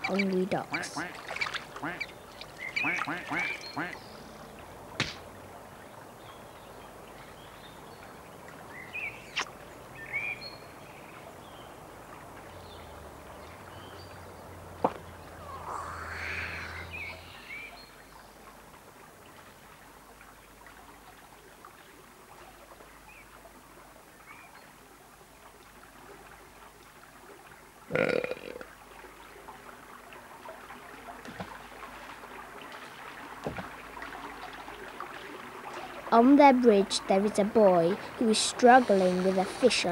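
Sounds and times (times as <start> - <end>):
faint hiss: 15.3 - 18.2.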